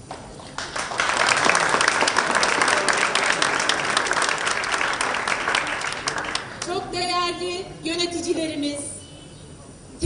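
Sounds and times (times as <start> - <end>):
crowd applauding: 0.4 - 6.9.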